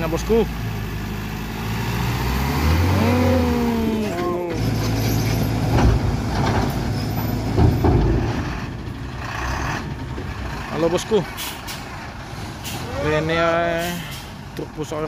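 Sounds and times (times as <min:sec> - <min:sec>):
diesel truck engine under load: 0:00.0 - 0:15.0.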